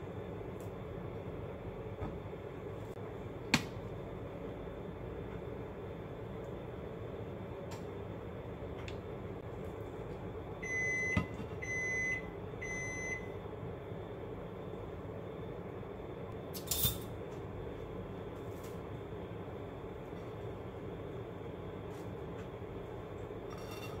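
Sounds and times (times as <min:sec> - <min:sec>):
appliance beeps: 0:10.6 - 0:13.4.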